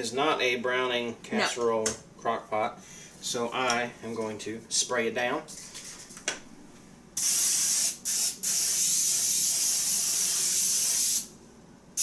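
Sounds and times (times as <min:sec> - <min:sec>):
aerosol spray hissing: 0:07.2 - 0:11.3.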